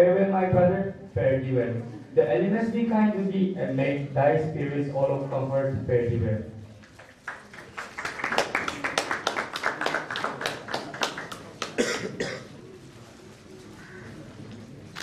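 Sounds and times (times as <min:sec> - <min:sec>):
audience clapping: 0:06.9 - 0:11.8
cough: 0:11.6 - 0:12.6.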